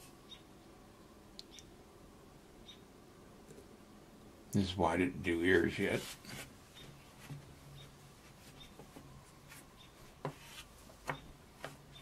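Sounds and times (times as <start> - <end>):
hands rubbing modelling clay: 5.9 - 12.0
small sharp knocks: 11.0 - 11.8.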